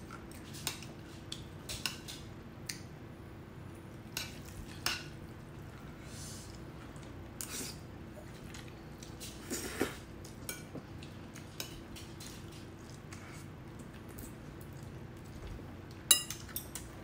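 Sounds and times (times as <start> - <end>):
chewing: 4.0 - 17.0
fork clinking in a bowl: 16.1 - 16.9.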